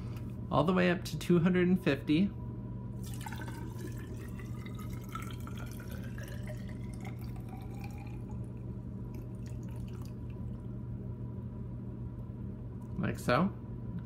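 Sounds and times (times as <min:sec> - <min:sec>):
water trickling and dripping: 0:03.0 - 0:08.5, 0:09.1 - 0:10.7
water pouring into cylinder: 0:03.0 - 0:10.8.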